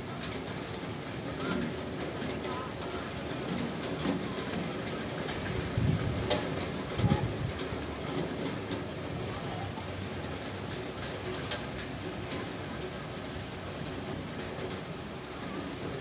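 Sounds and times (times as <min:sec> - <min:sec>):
raindrops tapping microphone: 0:00.0 - 0:16.0
steady rain falling: 0:00.0 - 0:16.0.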